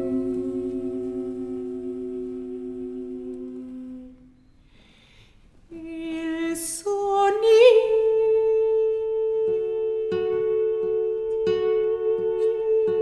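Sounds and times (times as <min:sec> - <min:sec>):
soprano singing sustained notes: 0:00.0 - 0:04.6, 0:05.7 - 0:13.0
low held note: 0:00.0 - 0:04.8.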